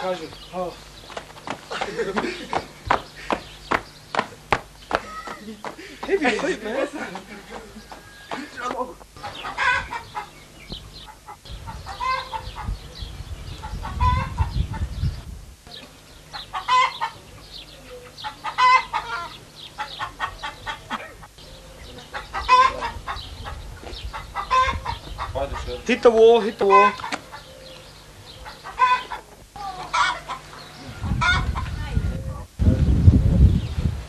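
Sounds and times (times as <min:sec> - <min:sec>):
chickens clucking: 0:00.1 - 0:32.4
low rumble on microphone: 0:09.3 - 0:16.2, 0:30.8 - 0:34.0.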